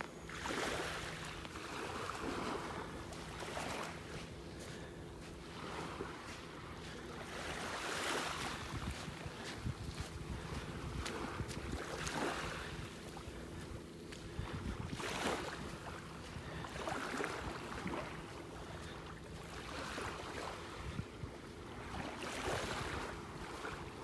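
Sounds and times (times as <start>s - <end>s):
small waves lapping: 0.0s - 24.0s
wind rumbling on microphone: 5.5s - 18.9s, 20.0s - 24.0s.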